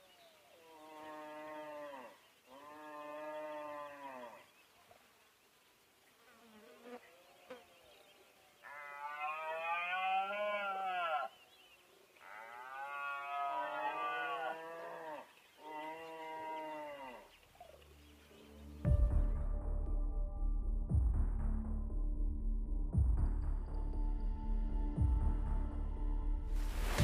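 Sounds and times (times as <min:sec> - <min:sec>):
deer stag roaring: 0:08.6 - 0:11.3, 0:12.2 - 0:17.3.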